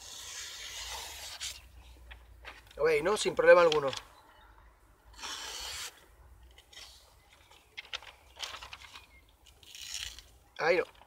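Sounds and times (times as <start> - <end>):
knife slicing paper: 0.0 - 1.6
paper crinkling: 6.8 - 11.0.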